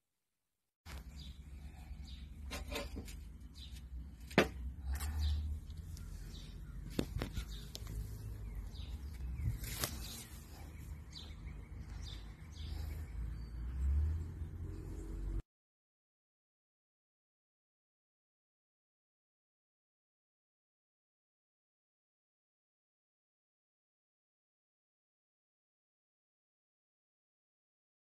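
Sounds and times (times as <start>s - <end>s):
low rumble on microphone: 4.8s - 15.3s.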